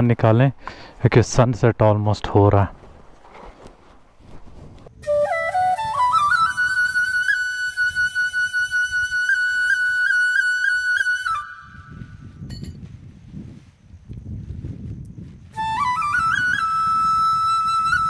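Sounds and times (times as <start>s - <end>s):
flute-like wind instrument: 4.9s - 12.4s, 15.4s - 18.0s.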